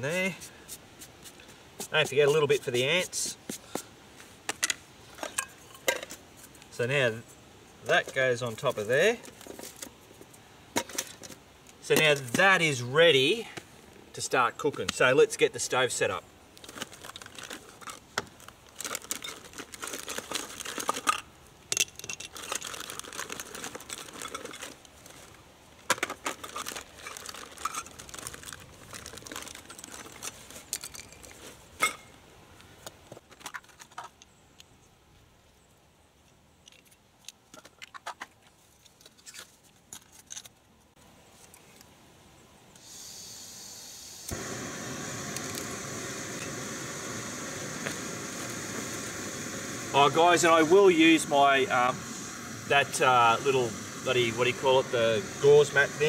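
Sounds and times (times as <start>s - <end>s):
stove parts clicking and clattering: 25.9s - 28.1s
fuel hissing: 42.8s - 56.0s
burner flame rushing: 44.2s - 56.0s
burner igniter click: 44.3s - 50.4s.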